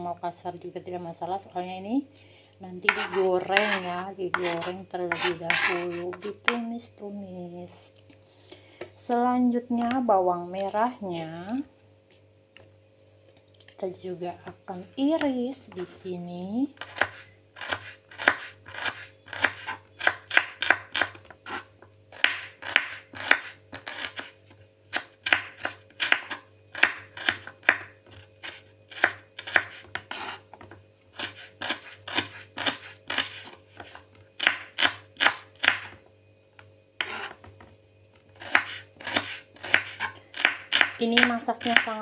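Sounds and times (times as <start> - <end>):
knife chopping on wooden board: 2.9 - 6.6, 16.8 - 24.3, 24.9 - 36.0, 37.0 - 37.7, 38.4 - 42.0.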